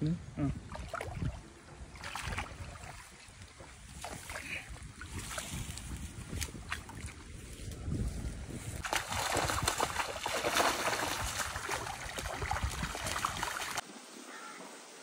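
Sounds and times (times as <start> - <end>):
water splashing from wading: 0.6 - 5.6, 8.8 - 13.8.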